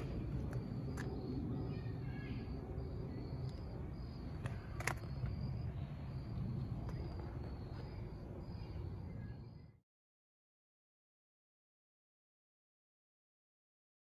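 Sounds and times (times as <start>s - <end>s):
insects chirping: 0.0s - 9.8s
steady low rumble: 0.0s - 9.8s.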